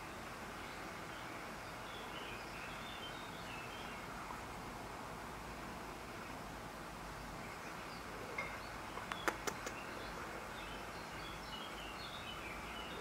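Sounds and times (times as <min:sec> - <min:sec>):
small birds chirping: 0:00.0 - 0:13.0
steady outdoor hiss: 0:00.0 - 0:13.0
sharp clicks: 0:09.0 - 0:09.8.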